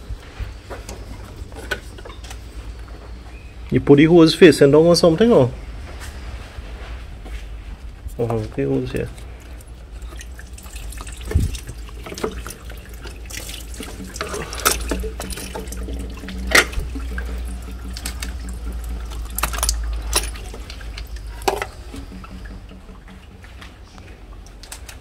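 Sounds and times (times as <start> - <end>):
clicks and knocks of hoses: 0.7 - 2.5, 8.1 - 25.0
fluid draining from a hose: 9.1 - 23.4.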